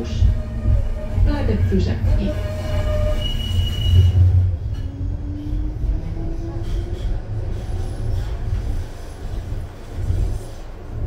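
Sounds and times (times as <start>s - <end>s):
high squeal: 0.0s - 5.5s
tram rumbling: 0.0s - 11.0s.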